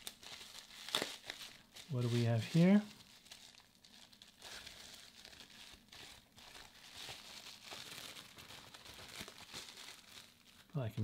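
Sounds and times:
plastic pouch crinkling: 0.0 - 11.0
small crackles: 0.0 - 11.0.

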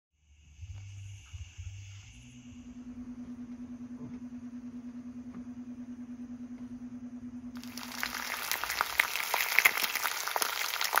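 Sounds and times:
low pulsing hum: 0.2 - 9.0
eggs sizzling in frying pan: 7.6 - 11.0.

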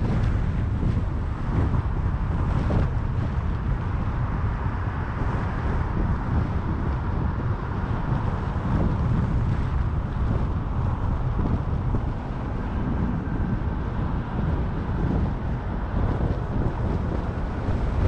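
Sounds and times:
car road and wind noise: 0.0 - 18.0.

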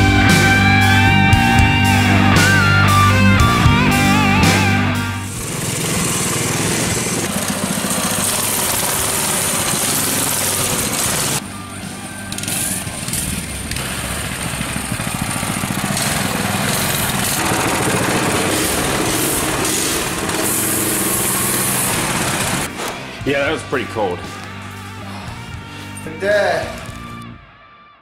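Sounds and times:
mini bike engines running: 5.3 - 23.2.

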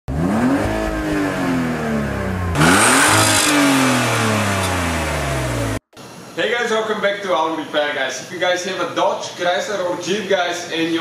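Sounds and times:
car engine revving: 0.1 - 5.8.

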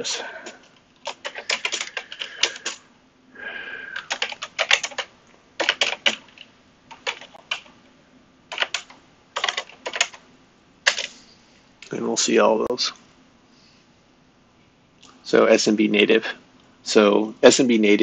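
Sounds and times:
typing on computer keyboard: 0.4 - 2.8, 4.0 - 7.7, 8.5 - 10.2, 10.9 - 11.1.

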